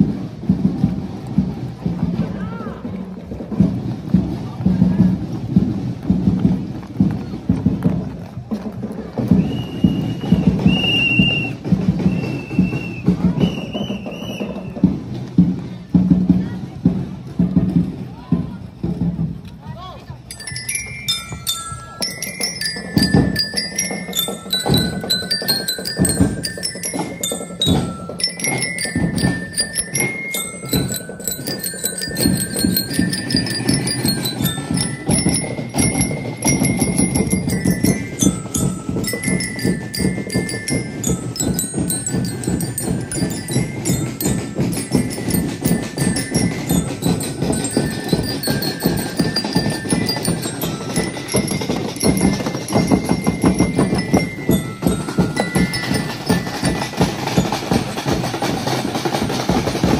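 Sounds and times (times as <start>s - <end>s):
march percussion beating: 0.0s - 59.9s
bell lyres playing melody: 20.2s - 59.9s.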